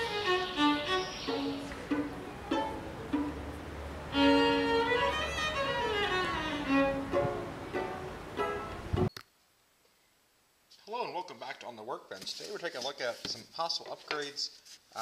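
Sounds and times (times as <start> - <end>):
instrumental string tune: 0.0 - 9.1.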